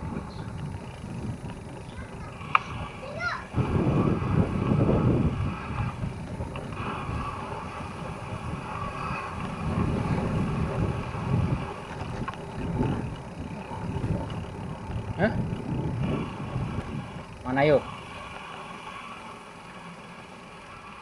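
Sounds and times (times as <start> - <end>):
wind rushing over microphone: 0.0 - 18.5
bike rolling on pavement: 0.0 - 21.0.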